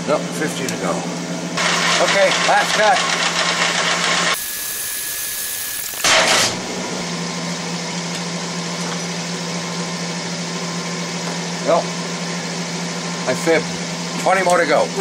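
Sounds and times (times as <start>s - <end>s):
metal lathe motor hum: 1.6s - 9.6s.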